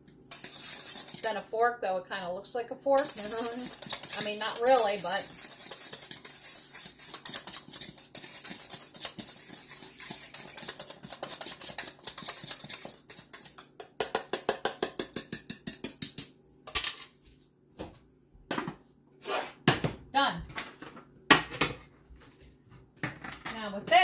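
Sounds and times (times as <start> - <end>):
whisk clicking against pot: 0.3 - 1.4, 3.0 - 16.3.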